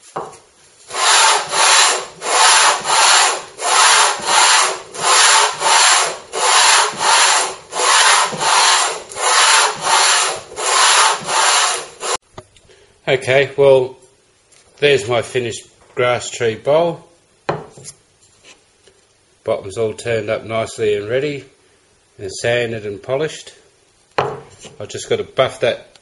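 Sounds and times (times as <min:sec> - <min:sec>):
wood rasping on sandpaper: 0:00.9 - 0:12.2.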